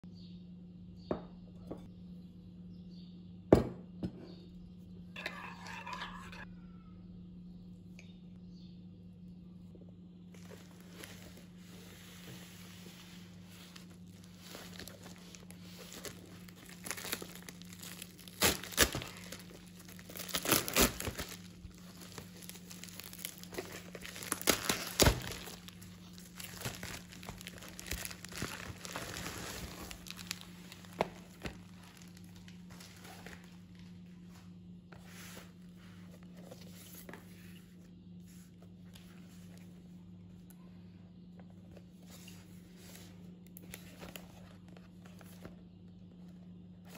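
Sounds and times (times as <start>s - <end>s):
plastic rustling: 10.3s - 34.5s
plastic mailer tearing: 13.9s - 33.5s.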